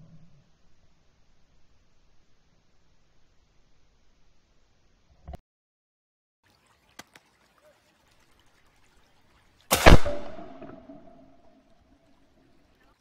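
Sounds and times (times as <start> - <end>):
faint clicks: 6.8 - 8.4
shotgun shot: 9.7 - 11.4.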